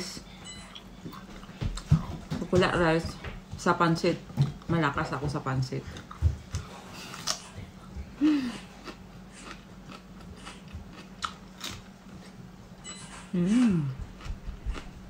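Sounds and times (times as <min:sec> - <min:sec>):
person humming: 0:08.2 - 0:08.7, 0:13.3 - 0:14.2
crunchy cucumber chewing: 0:08.6 - 0:12.4, 0:13.5 - 0:15.0.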